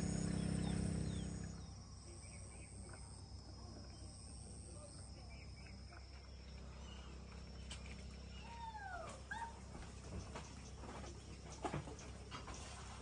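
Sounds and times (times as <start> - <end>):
low outdoor hum: 0.0 - 13.0.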